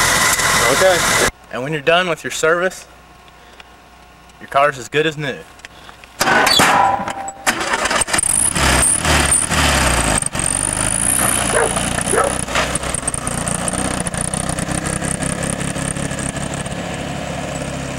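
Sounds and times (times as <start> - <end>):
car engine revving: 0.0 - 1.3, 7.5 - 17.9
sharp knock: 6.2 - 7.5.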